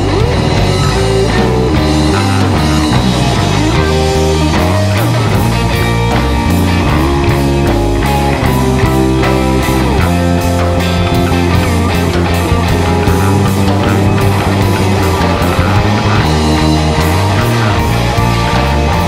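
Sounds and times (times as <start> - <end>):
bass and drum kit: 0.0 - 19.0
electric guitar lead: 0.0 - 19.0.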